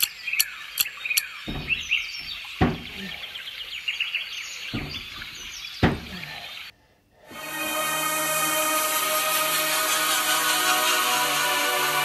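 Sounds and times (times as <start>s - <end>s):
birds chirping: 0.0s - 6.7s
dull thumps of push-ups: 1.5s - 3.2s, 4.7s - 6.3s
music: 7.3s - 12.0s.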